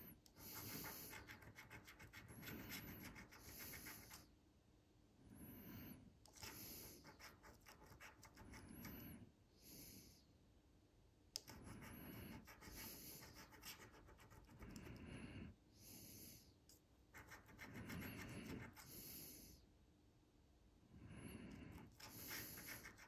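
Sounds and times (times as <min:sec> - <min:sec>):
fingernail scratching paper: 0:00.3 - 0:04.3, 0:06.3 - 0:09.0, 0:11.4 - 0:15.0, 0:17.1 - 0:19.0, 0:21.5 - 0:23.0.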